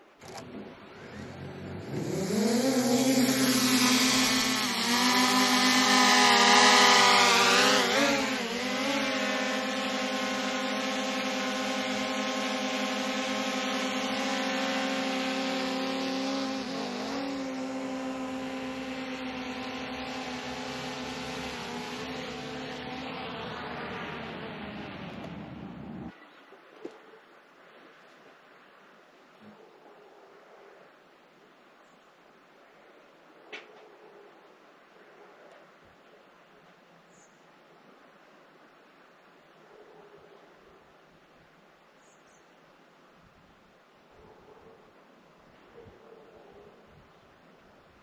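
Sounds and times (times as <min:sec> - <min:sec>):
drone propellers whining: 0:00.2 - 0:26.1.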